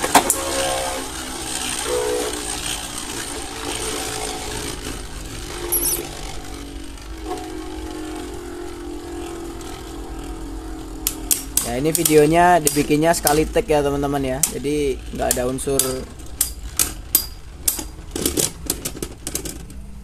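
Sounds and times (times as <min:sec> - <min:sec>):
spinning tops whirring: 0:00.9 - 0:06.4.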